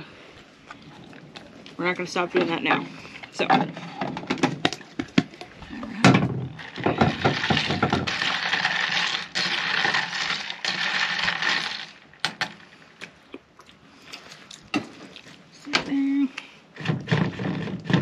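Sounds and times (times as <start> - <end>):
plastic container clattering on table: 6.0 - 8.2.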